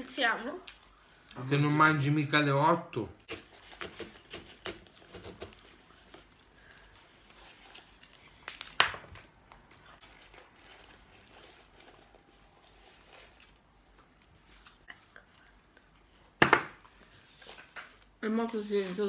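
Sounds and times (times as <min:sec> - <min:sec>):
sharp paper crinkle: 0:03.5 - 0:13.7
paper packaging rustling: 0:03.5 - 0:14.8.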